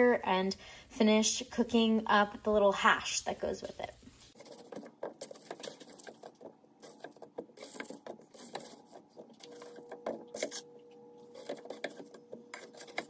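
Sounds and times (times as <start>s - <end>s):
spatula scraping in skillet: 4.2s - 13.0s
faint steady hum: 8.4s - 13.0s.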